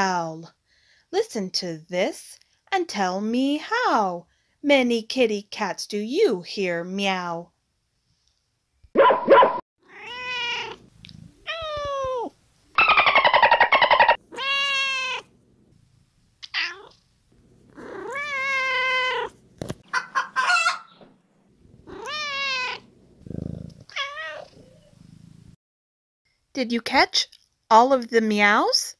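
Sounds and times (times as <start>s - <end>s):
cats meowing: 9.8s - 12.3s, 14.0s - 15.4s, 16.4s - 17.0s, 17.6s - 19.8s, 21.7s - 23.0s, 23.8s - 25.0s
cat chirps and clicks: 10.0s - 15.3s, 16.4s - 17.0s
loud buzzy pulsed cat call: 12.7s - 15.3s.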